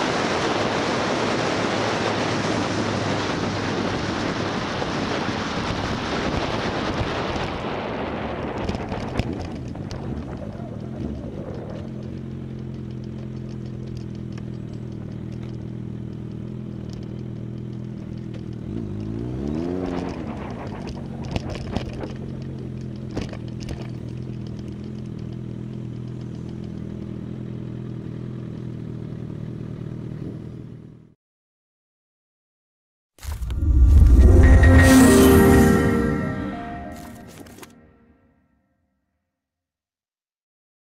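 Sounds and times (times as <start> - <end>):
motorcycle engine idling: 22.2 - 31.1.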